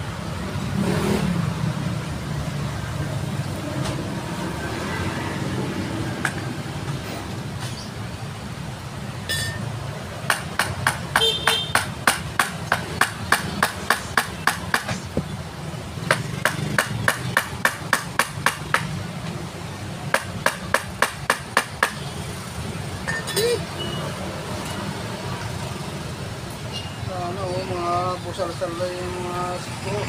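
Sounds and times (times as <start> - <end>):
sharp metallic taps: 10.2 - 15.3, 16.0 - 19.0.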